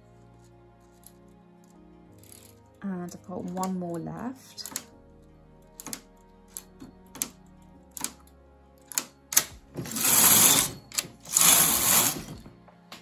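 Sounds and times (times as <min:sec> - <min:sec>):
knitting machine needles clicking: 0:02.2 - 0:05.0, 0:05.8 - 0:08.3, 0:08.9 - 0:12.3
knitting carriage clattering: 0:08.9 - 0:12.4.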